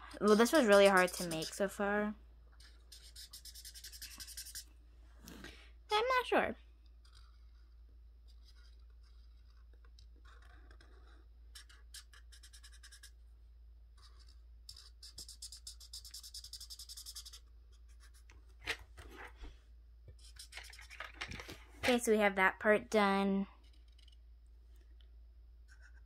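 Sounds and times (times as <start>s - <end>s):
coloring tool scratching paper: 0.0s - 1.9s, 2.5s - 4.7s, 6.8s - 13.2s, 14.0s - 18.3s, 20.1s - 21.2s.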